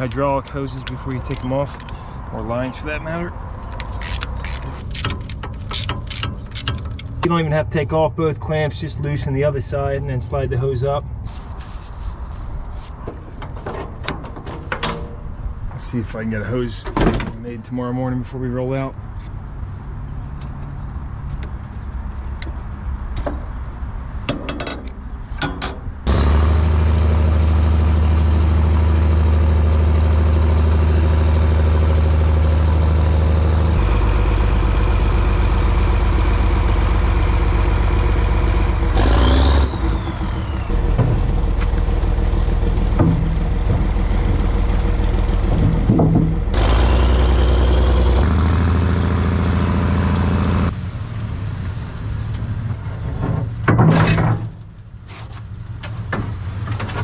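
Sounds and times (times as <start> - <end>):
large diesel engine running: 26.0 - 52.9
scattered knocks: 42.6 - 44.8, 45.4 - 46.6.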